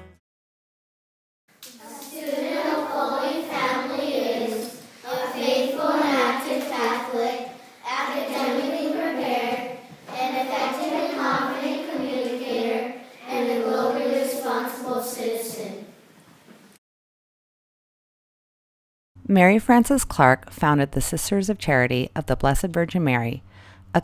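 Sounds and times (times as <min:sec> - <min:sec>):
children singing together: 0:01.7 - 0:15.9.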